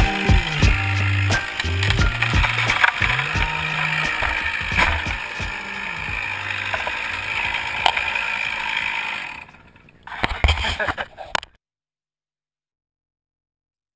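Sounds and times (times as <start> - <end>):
chainsaw idling: 0.0 - 9.7.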